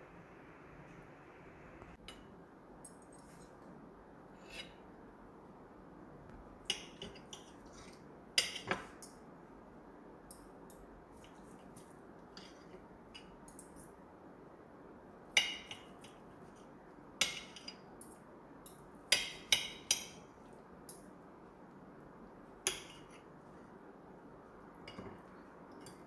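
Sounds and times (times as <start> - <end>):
faint steady hiss: 0.0 - 26.0
cutlery clinking on a plate: 8.4 - 9.1, 24.9 - 26.0.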